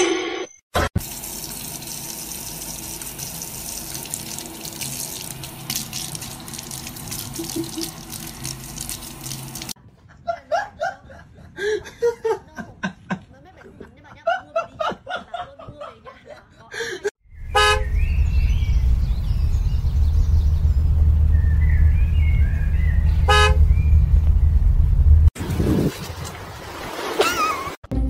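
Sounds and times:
tap water running into sink: 1.0 - 9.8.

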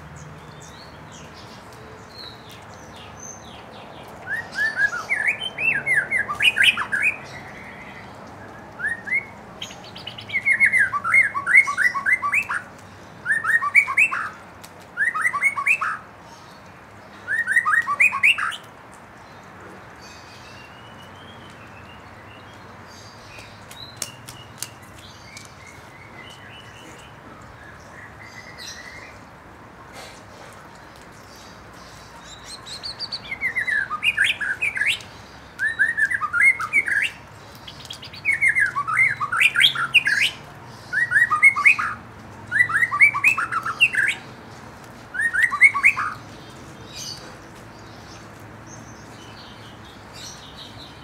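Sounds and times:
bird singing sweeping notes: 2.2 - 14.4, 15.0 - 16.0, 32.2 - 44.3, 45.1 - 46.2.

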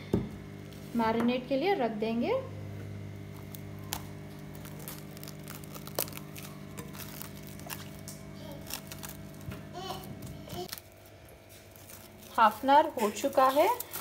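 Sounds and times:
steady low hum: 0.0 - 14.0
cling film crinkling: 3.2 - 14.0.

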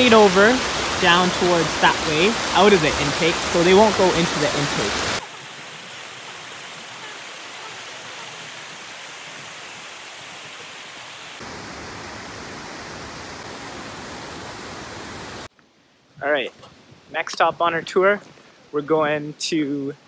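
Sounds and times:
water rushing over weir and rocks: 0.0 - 15.5.

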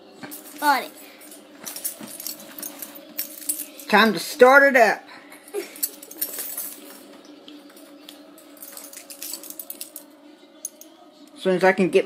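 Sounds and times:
toys clicking and clinking: 5.5 - 10.9.

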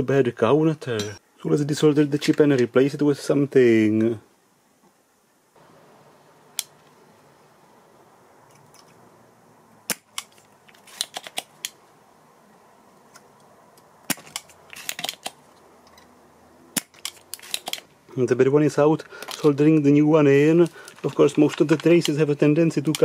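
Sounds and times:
desoldering pump snapping: 13.1 - 15.4, 16.8 - 17.9.

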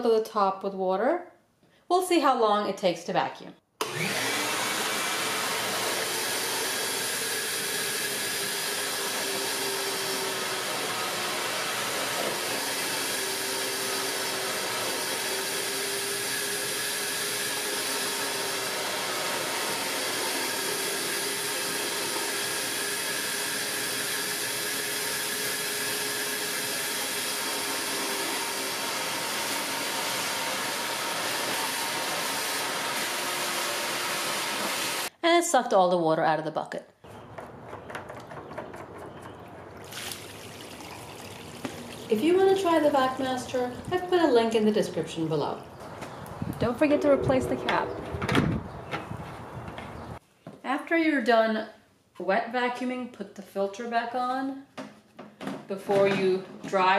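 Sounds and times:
wet dry vacuum running: 3.8 - 35.1, 37.9 - 44.8
hose sucking water: 39.8 - 44.7.

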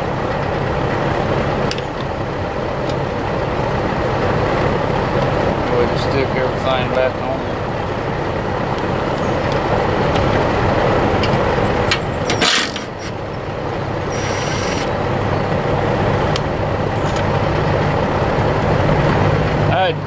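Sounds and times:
steady low rumble: 0.0 - 20.0
impact driver bursts with whine: 12.3 - 13.2, 14.1 - 14.9.

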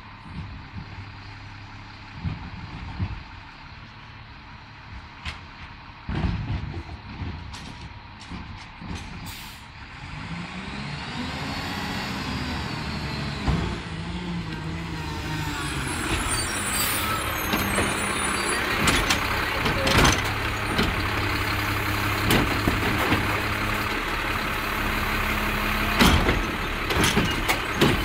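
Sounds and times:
truck diesel engine: 0.0 - 28.0
air brakes squealing and hissing: 9.2 - 9.8, 14.8 - 21.6.

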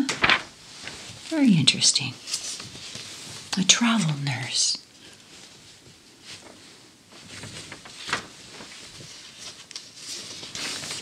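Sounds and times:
paper crackle: 0.0 - 1.4, 2.1 - 3.5, 5.0 - 11.0
paper pages rustling: 0.0 - 3.5, 5.0 - 11.0.

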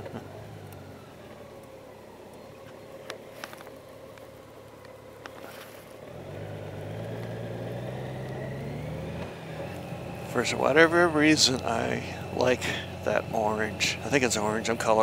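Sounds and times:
road noise: 0.0 - 15.0
motorcycle engine running: 5.0 - 15.0.

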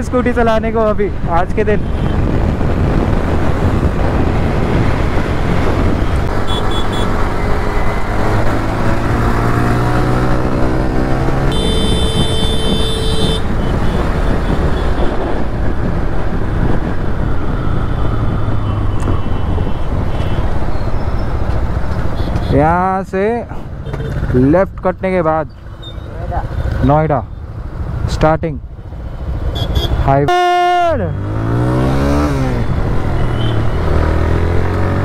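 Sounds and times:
wind rush: 0.0 - 21.8
vehicle horn: 6.4 - 7.1, 11.5 - 14.0, 29.5 - 30.9.

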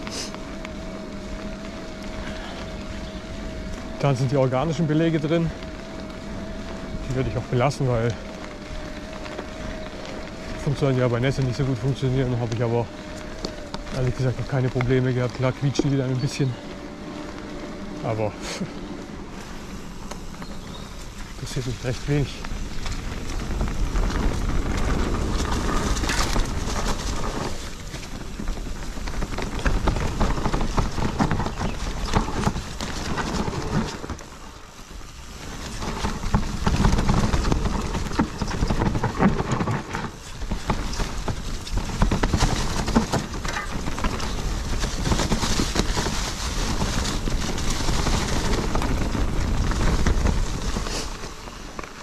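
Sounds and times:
bike tyres rolling on trail: 0.0 - 52.0
wind buffeting microphone: 0.0 - 52.0.

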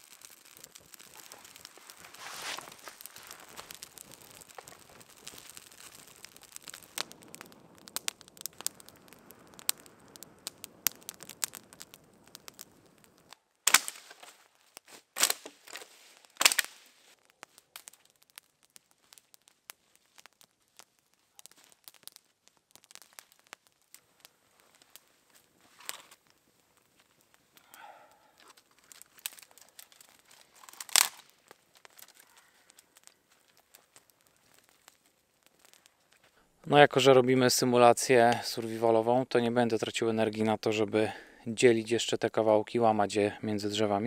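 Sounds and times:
loud wood snaps: 0.0 - 24.0, 27.0 - 36.2
campfire crackling: 0.0 - 44.0.

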